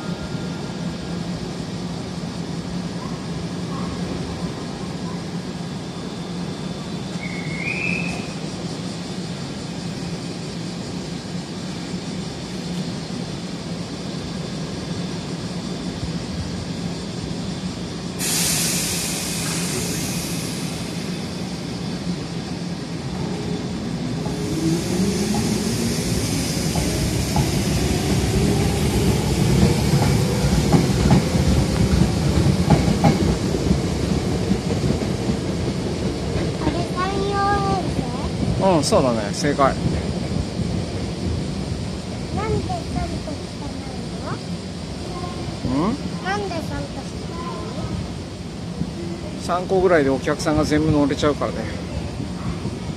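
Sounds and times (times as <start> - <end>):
air hiss: 11.4 - 33.2.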